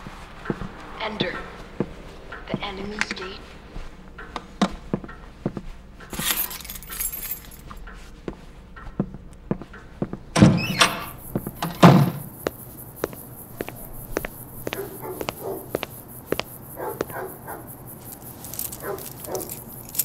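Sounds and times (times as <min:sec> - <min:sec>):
keys jangling and clicking: 0:06.1 - 0:07.8, 0:14.2 - 0:20.0
heavy door thuds: 0:10.4 - 0:12.4.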